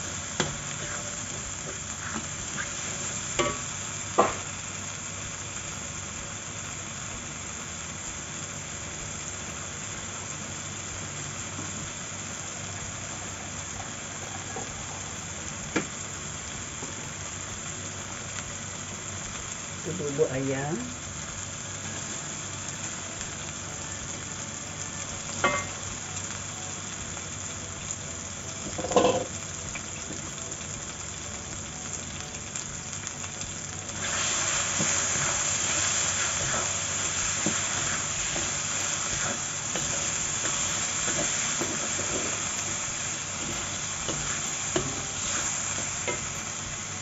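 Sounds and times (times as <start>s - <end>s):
chicken sizzling in a wok: 0.0s - 47.0s
knocks against wok: 28.8s - 29.3s.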